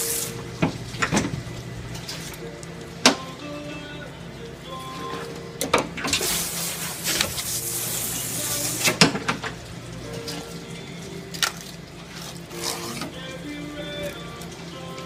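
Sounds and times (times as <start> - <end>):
steady hiss: 0.0 - 11.3.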